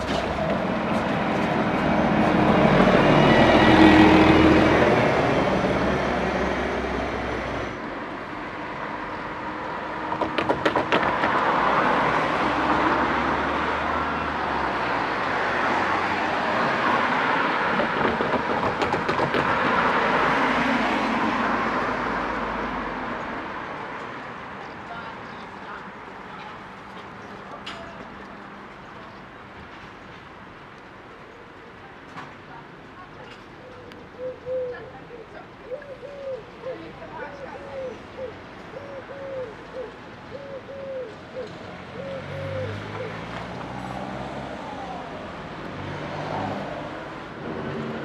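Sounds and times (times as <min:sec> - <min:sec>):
bus driving past: 0:00.0 - 0:24.8, 0:41.0 - 0:48.0
cars passing: 0:00.0 - 0:30.7, 0:33.8 - 0:48.0.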